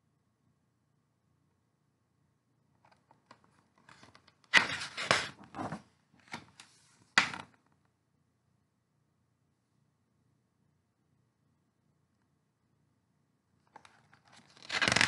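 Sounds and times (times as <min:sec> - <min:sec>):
paper pages rustling: 0:02.9 - 0:07.5, 0:13.8 - 0:15.0.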